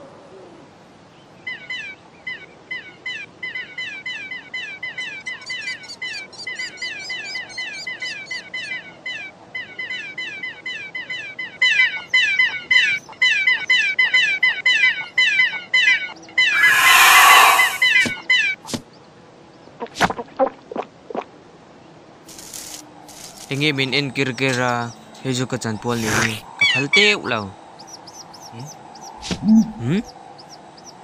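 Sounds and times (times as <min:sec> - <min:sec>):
cartoon creatures cheeping: 0:16.4 - 0:18.0.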